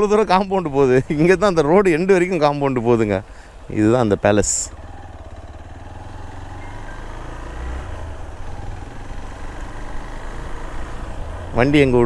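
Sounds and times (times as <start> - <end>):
motorcycle engine at low revs: 3.7 - 12.0.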